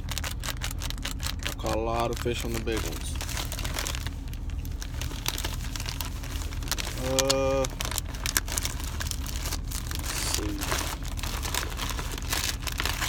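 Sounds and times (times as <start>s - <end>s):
plastic packages crinkling: 0.0s - 13.0s
steady low hum: 0.0s - 13.0s
person humming: 10.1s - 10.7s.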